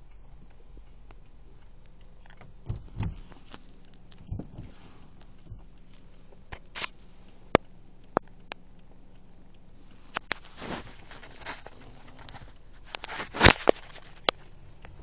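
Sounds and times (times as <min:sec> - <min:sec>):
short scrape: 0:10.4 - 0:14.3.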